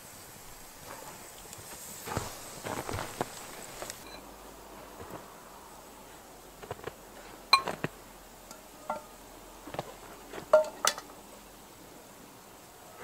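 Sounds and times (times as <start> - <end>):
metal pot lid clinks: 10.5 - 11.1.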